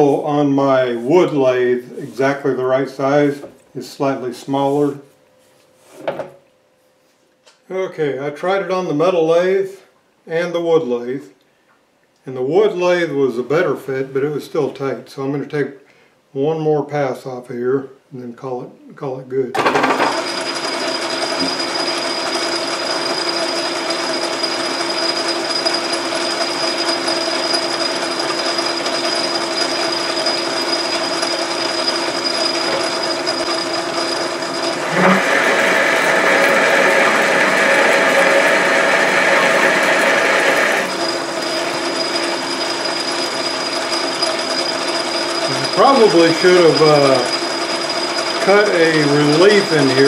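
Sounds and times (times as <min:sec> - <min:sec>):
lathe tool cutting metal: 0:19.6 - 0:50.0
metal lathe whining: 0:19.6 - 0:50.0.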